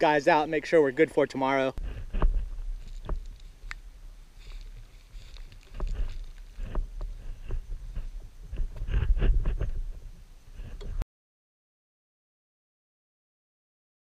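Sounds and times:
steady low rumble: 0:01.7 - 0:11.0.

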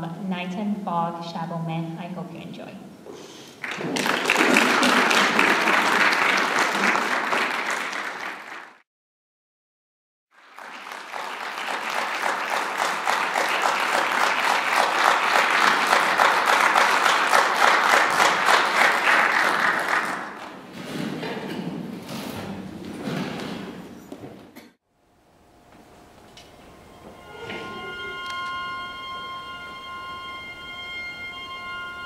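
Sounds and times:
audience applauding: 0:03.6 - 0:08.8, 0:10.3 - 0:20.6.

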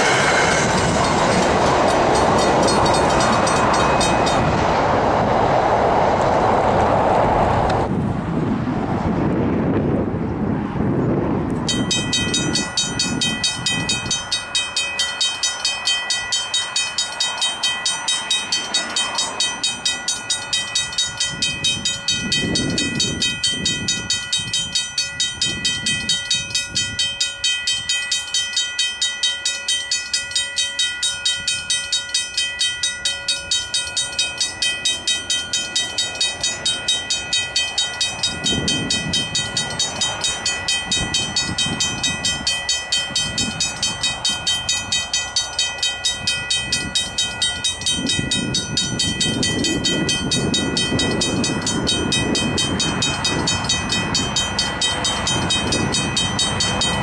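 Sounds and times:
level crossing bells clanging: 0:00.0 - 0:04.6, 0:11.7 - 0:57.0.

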